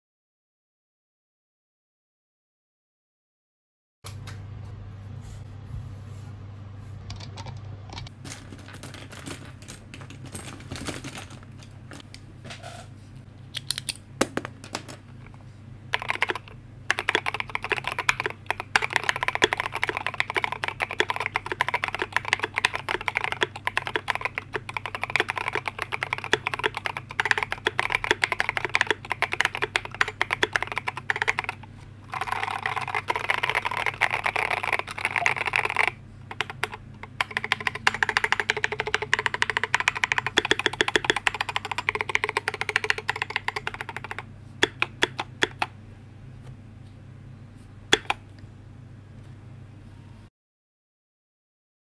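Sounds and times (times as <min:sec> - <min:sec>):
faint low hum: 0:04.1 - 0:50.3
typing on mechanical keyboard: 0:15.9 - 0:45.7, 0:47.9 - 0:48.2.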